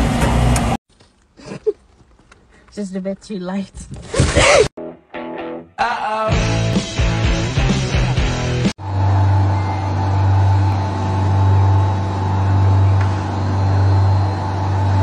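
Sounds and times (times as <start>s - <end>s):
background music: 4.8s - 8.7s
loud steady low hum: 8.8s - 15.0s
faint higher tone: 9.3s - 10.9s.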